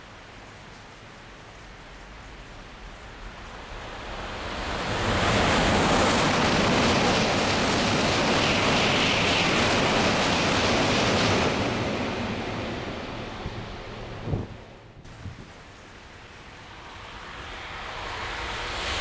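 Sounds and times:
rain: 0.0s - 19.0s
high-speed train passing: 3.0s - 19.0s.

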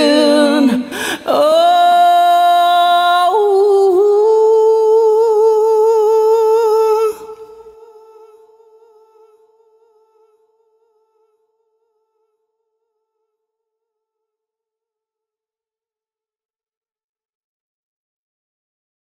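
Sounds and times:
man singing with vibrato: 0.0s - 10.2s.

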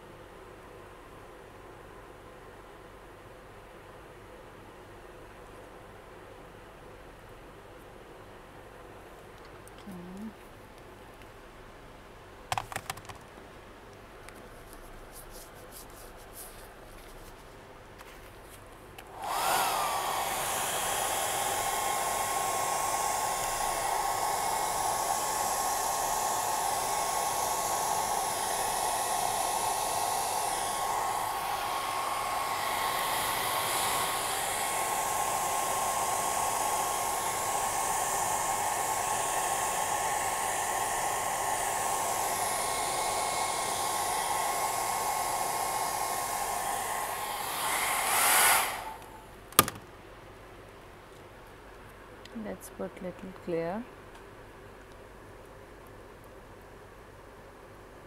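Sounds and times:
hair dryer blowing: 19.0s - 49.8s.

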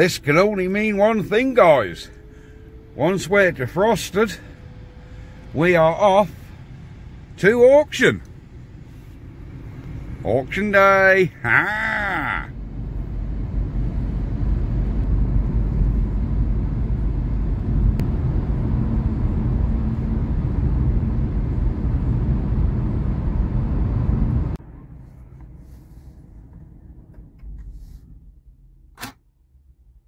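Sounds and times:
car cabin road and engine rumble: 0.0s - 30.0s.

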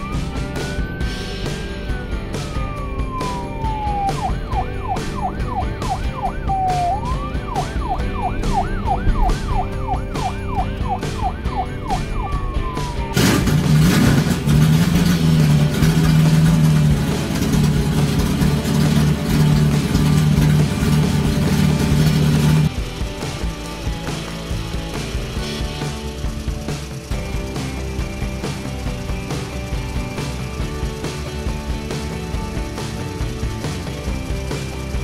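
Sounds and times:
music with steady beat: 0.0s - 35.0s
toy siren wailing and yelping: 2.8s - 13.2s.

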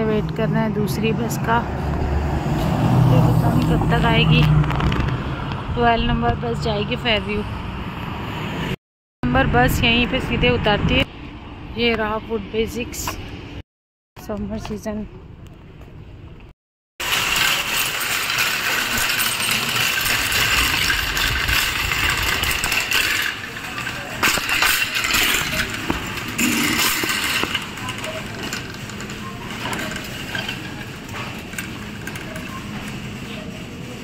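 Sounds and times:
shopping cart rattling and rolling: 17.0s - 34.0s.

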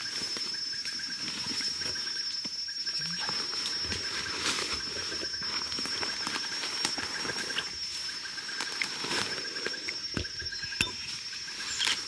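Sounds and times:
high insect drone: 0.0s - 12.0s
rapid pulsing insect call: 0.0s - 12.0s
vegetation crackling and snapping: 5.8s - 7.8s, 8.5s - 12.0s.

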